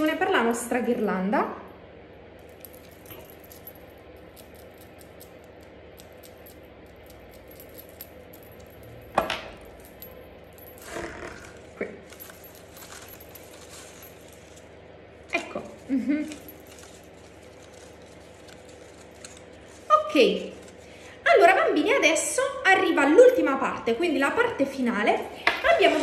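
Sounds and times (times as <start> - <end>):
metal bangles clinking: 2.4 - 14.8, 15.8 - 19.4
paper handling: 16.2 - 20.9.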